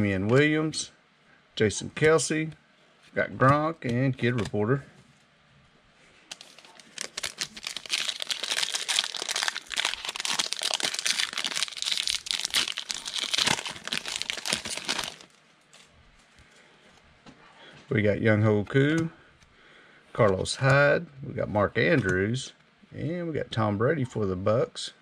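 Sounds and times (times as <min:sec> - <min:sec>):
foil wrapper crinkling: 0:06.3 - 0:15.9.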